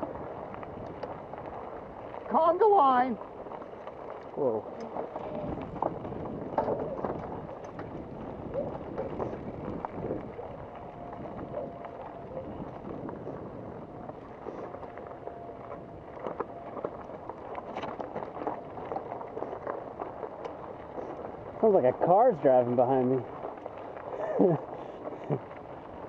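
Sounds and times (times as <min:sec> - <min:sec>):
bike rattling over rocks: 0:00.0 - 0:26.0
bike tyres on rocky dirt: 0:00.0 - 0:26.0
wind on microphone: 0:00.0 - 0:26.0.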